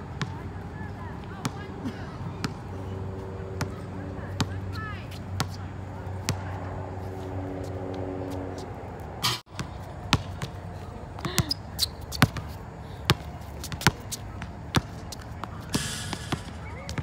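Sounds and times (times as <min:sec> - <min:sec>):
basketball bouncing on concrete: 0:09.4 - 0:10.6, 0:11.2 - 0:17.0.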